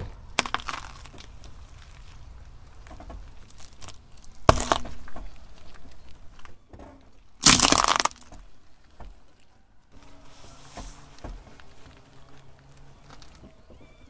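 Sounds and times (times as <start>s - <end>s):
sharp crack: 0.0s - 5.8s, 7.4s - 8.4s
tyre crushing objects on asphalt: 0.0s - 9.3s.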